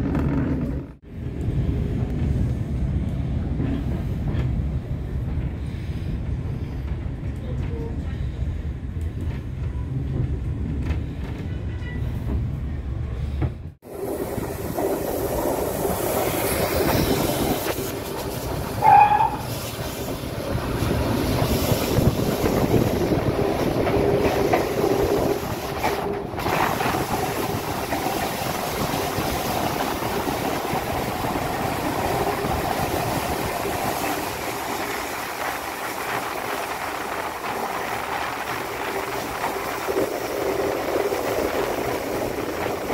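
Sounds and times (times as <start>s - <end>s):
train rumbling on track: 0.0s - 42.9s
high train whistle: 18.8s - 19.5s.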